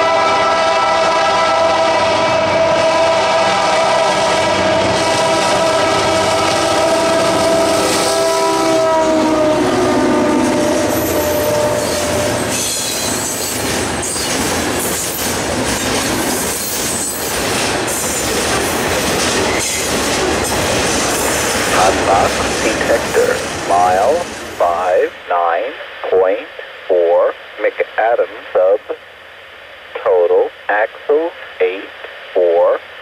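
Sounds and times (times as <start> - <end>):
locomotive horn: 0.0 - 12.8.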